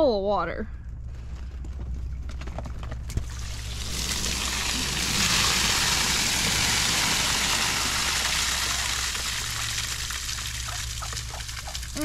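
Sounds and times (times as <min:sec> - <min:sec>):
rainwater pouring onto grass: 0:03.2 - 0:12.0.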